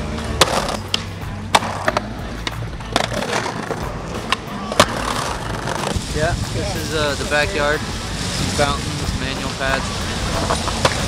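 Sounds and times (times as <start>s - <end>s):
skateboard clacks: 0.0s - 6.0s, 9.2s - 11.0s
background music: 0.0s - 11.0s
skateboard rolling on pavement: 0.0s - 11.0s.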